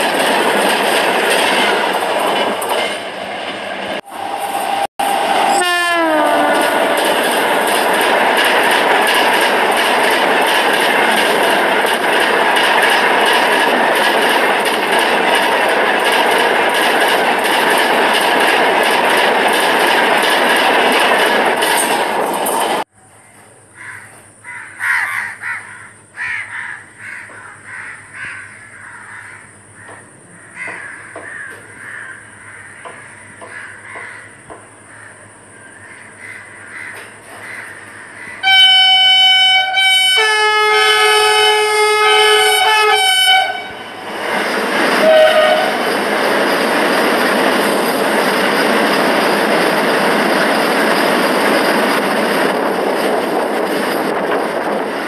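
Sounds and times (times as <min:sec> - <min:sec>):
train rushing by: 0:00.0 - 0:22.9, 0:29.4 - 0:55.0
train horn: 0:04.0 - 0:07.2, 0:38.4 - 0:44.0, 0:45.0 - 0:45.9
crows cawing: 0:23.8 - 0:38.4.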